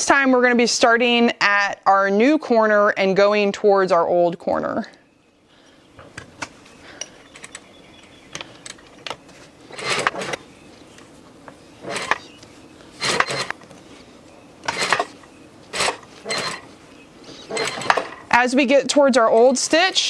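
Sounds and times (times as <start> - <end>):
sewing machine stitching: 9.7 - 10.4, 11.8 - 12.2, 13.0 - 13.6, 14.6 - 15.1, 15.7 - 16.7, 17.5 - 18.2.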